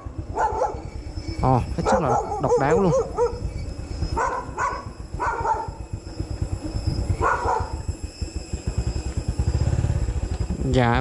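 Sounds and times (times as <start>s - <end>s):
dog barking: 0.0s - 0.9s, 1.8s - 3.4s, 4.1s - 5.8s, 7.2s - 7.9s.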